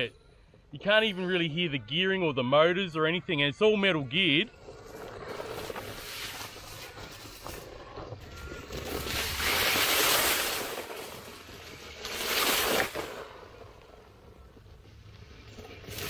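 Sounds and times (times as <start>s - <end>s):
dry leaves crunching under tyres: 4.8s - 13.4s.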